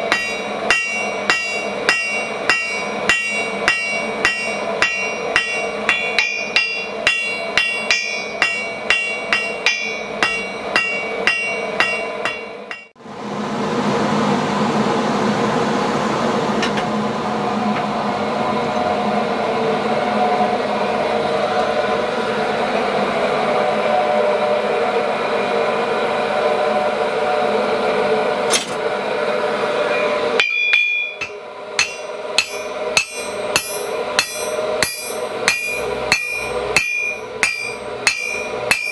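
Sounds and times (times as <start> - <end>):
hammer ringing on anvil: 0.0 - 12.9, 29.9 - 38.9.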